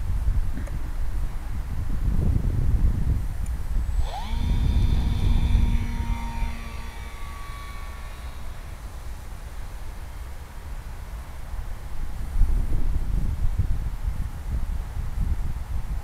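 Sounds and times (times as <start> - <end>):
wind on microphone: 0.0 - 10.2, 11.6 - 16.0
model plane motor whine: 3.6 - 10.7.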